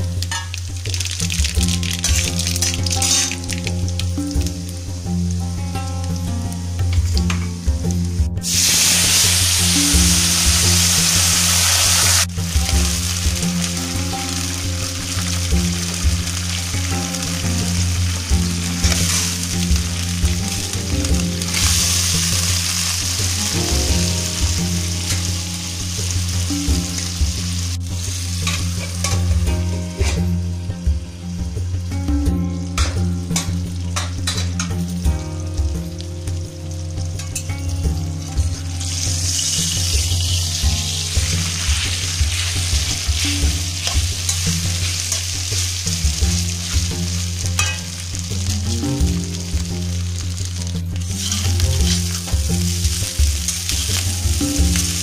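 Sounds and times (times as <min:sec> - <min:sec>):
background music: 0:00.0 - 0:55.0
sizzling in a wok: 0:00.0 - 0:55.0.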